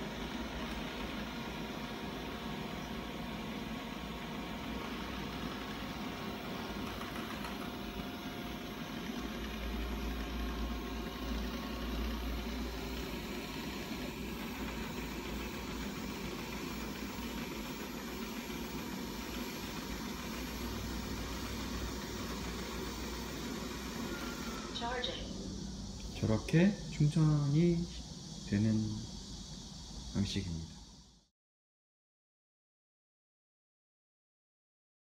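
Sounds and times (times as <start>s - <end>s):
robot vacuum mechanical whir: 0.0s - 27.8s.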